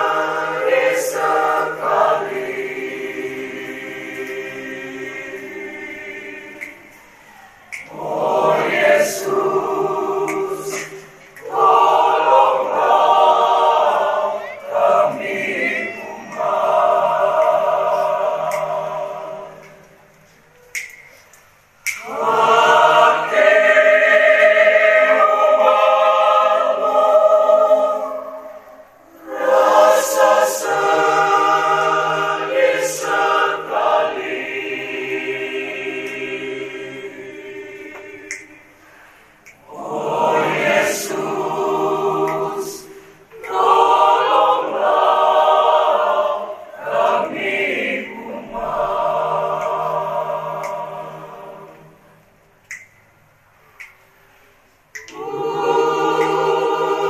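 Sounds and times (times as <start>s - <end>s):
choir chanting: 0.0s - 20.6s, 21.9s - 52.4s, 54.9s - 57.0s.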